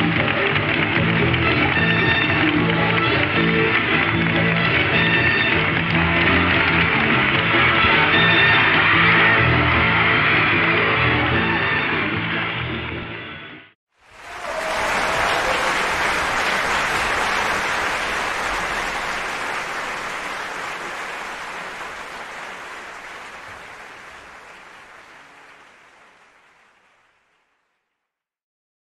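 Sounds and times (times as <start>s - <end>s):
audience applauding: 0.0s - 12.5s, 14.0s - 27.9s.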